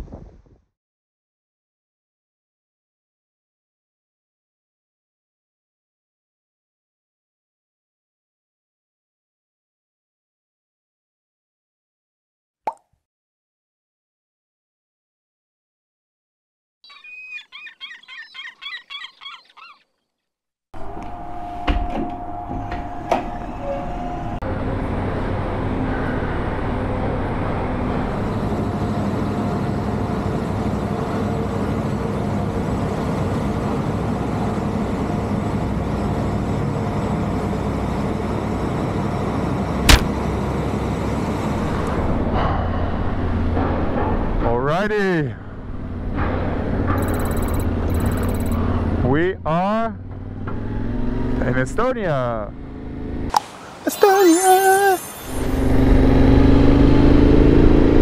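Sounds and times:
ship machinery rumble and hum: 20.8 - 50.2
sharp bang: 39.9 - 40.2
high chirping effect: 53.9 - 56.0.

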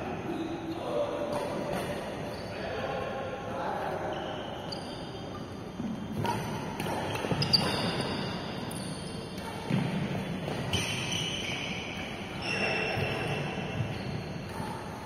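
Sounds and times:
racket hitting shuttlecock: 6.1 - 12.4, 13.0 - 15.0.

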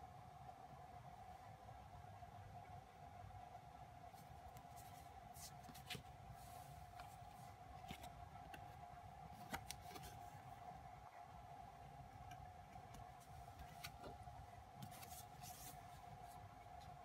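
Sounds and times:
faint steady hum: 0.0 - 17.0
photocards clicking and rustling: 4.2 - 6.2, 6.8 - 10.4, 13.1 - 14.2, 14.8 - 16.0.

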